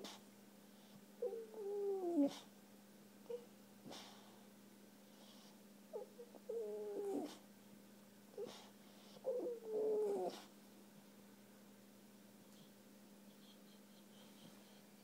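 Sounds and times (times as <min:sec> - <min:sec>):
puppy whining: 0:01.2 - 0:02.5, 0:05.2 - 0:07.4, 0:08.3 - 0:10.5, 0:12.6 - 0:15.0.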